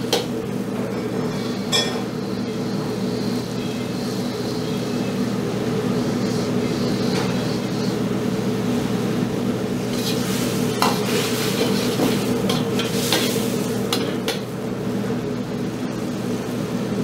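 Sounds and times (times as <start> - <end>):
low hum of gas burner: 0.0 - 17.0
sauce bubbling and sizzling: 9.7 - 14.7
ladle clinking and scraping wok: 9.9 - 14.4.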